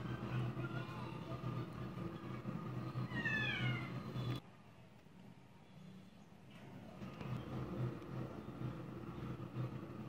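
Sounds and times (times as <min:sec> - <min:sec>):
low background rumble: 0:00.0 - 0:04.4.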